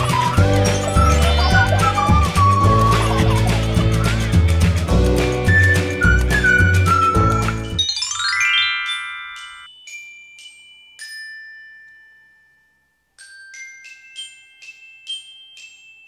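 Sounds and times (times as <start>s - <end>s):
glockenspiel-like bell jingle: 7.6s - 16.0s.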